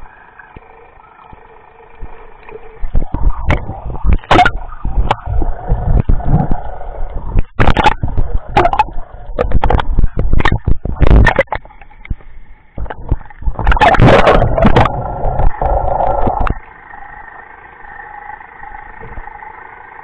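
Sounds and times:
muffled underwater hum: 0.0 - 20.0
water splashing against camera: 1.3 - 16.6.

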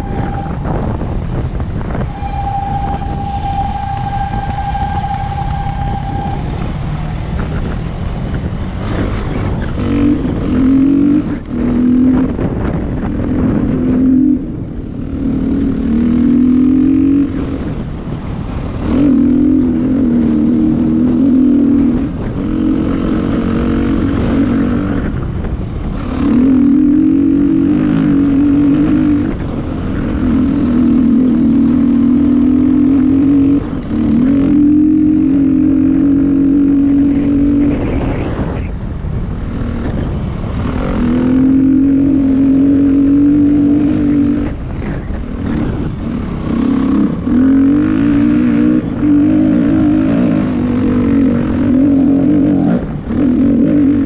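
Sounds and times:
dirt bike engine revving: 45.4 - 54.0.

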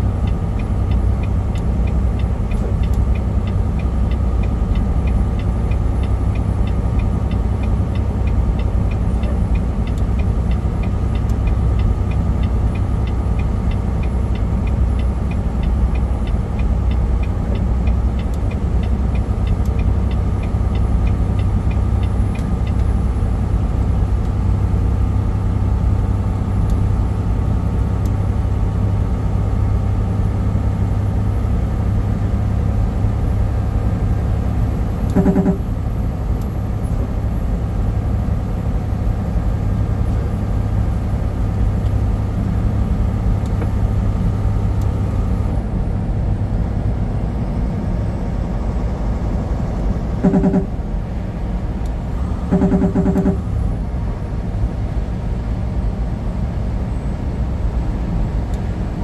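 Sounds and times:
road noise: 0.0 - 59.0
truck engine drone: 0.0 - 59.0
light ticking: 0.1 - 23.4.

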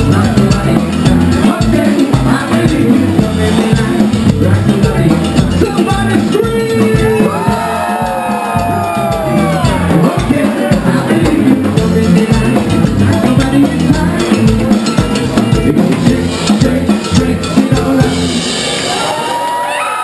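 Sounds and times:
bass guitar: 0.0 - 19.4
pounding drum kit: 0.0 - 19.4
live band playing: 0.0 - 20.0
crowd cheering and shouting: 5.6 - 11.4, 16.2 - 20.0.

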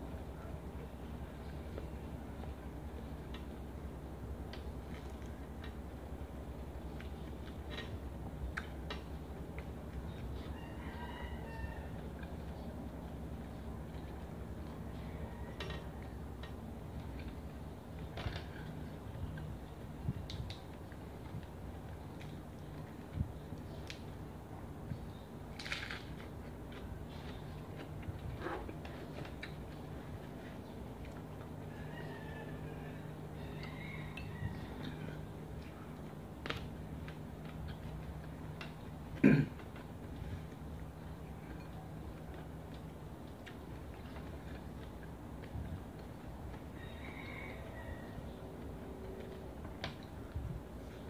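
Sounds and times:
steady low hum: 0.0 - 51.0
faint chewing clicks: 39.6 - 46.6.

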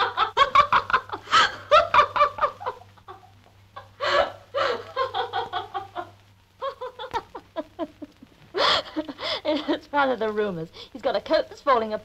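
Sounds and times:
people snickering and laughing: 0.0 - 9.4.

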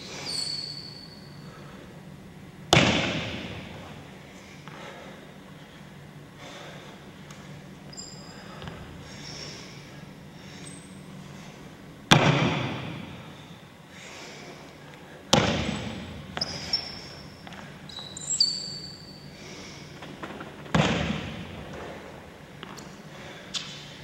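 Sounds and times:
short high squeaks: 0.2 - 1.4, 7.9 - 8.5, 15.8 - 19.3.

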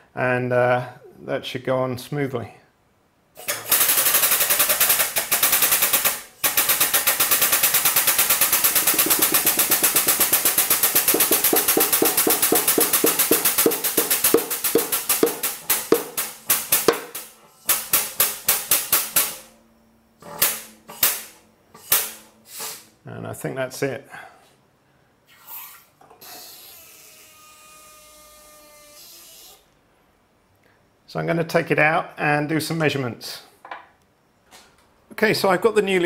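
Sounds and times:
hydraulic press pump chattering: 6.5 - 16.2.

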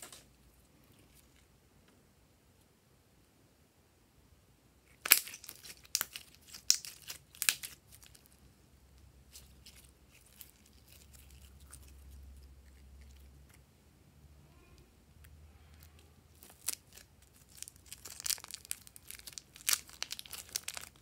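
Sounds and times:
slime crackling and popping: 4.9 - 8.4, 16.3 - 21.0.

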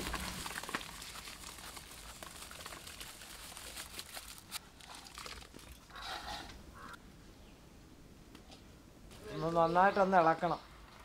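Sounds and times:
rice pouring into water: 0.0 - 5.4.

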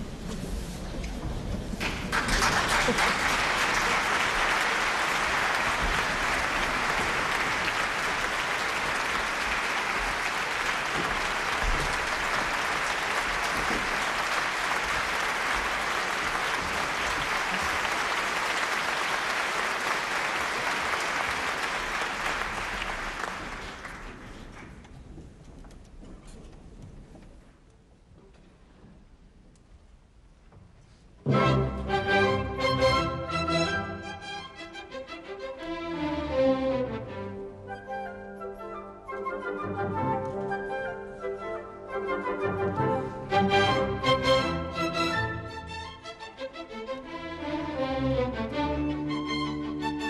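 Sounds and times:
audience applauding: 1.8 - 24.9.

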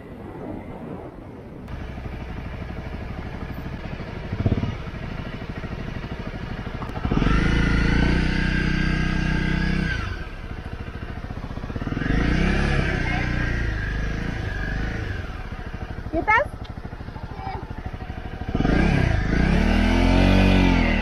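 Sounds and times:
motorcycle engine running: 1.7 - 21.0.

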